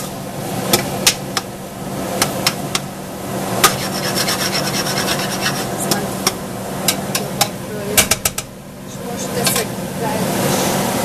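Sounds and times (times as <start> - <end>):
steady low hum: 0.0 - 11.0
metal spoon scraping a pot: 3.7 - 5.8.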